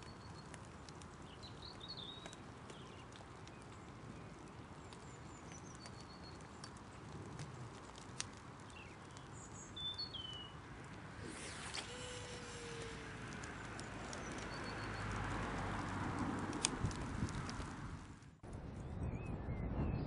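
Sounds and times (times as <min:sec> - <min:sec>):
bird chirps: 0:08.7 - 0:10.6, 0:13.8 - 0:15.2
fishing rod whooshing: 0:11.1 - 0:13.2
sharp clicks: 0:11.3 - 0:18.4.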